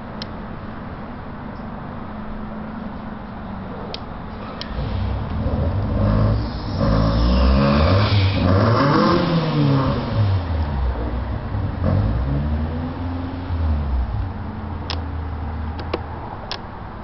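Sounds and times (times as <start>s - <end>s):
heavy low rumble: 3.6s - 15.3s.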